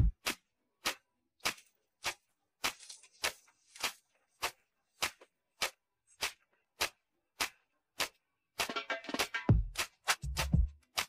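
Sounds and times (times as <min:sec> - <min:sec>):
ticking percussion beat: 0:08.0 - 0:10.8.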